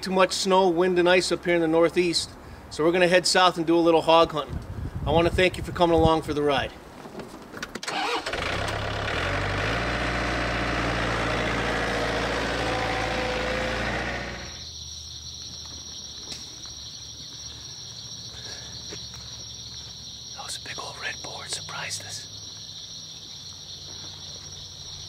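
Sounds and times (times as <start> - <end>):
vehicle engine running: 8.5 - 14.6
high-pitched insect buzz: 12.3 - 16.1.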